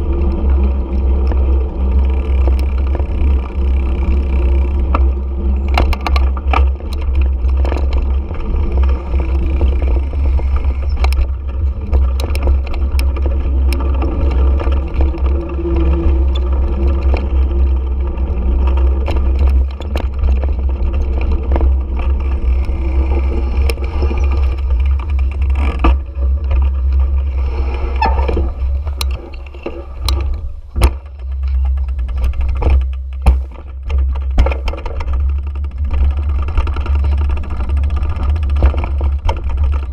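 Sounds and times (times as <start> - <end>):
motorcycle engine at low speed: 0.0 - 39.9
wind rumble on microphone: 0.0 - 39.9
camera mount knocks and rattles: 28.0 - 35.3.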